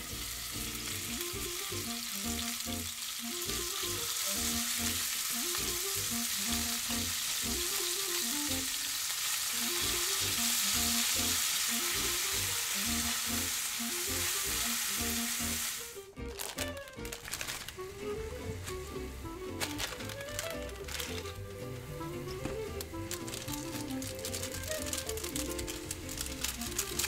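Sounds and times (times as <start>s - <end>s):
background music with steady beat: 0.0s - 8.8s, 9.5s - 27.0s
beef sizzling in a frying pan: 0.0s - 16.0s, 22.6s - 27.0s.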